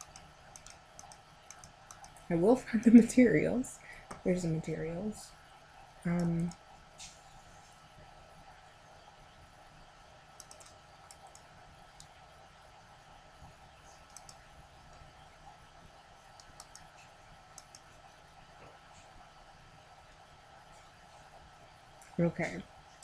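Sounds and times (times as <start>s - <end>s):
computer mouse clicks: 0.0s - 2.3s, 6.1s - 7.2s, 10.4s - 12.2s, 13.8s - 15.1s, 16.3s - 18.0s
low background hum: 0.0s - 23.0s.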